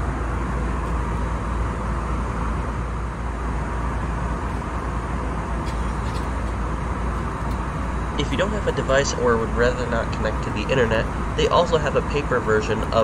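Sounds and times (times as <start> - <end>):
airliner cabin air rush: 0.0 - 13.0
deep low hum: 0.0 - 13.0.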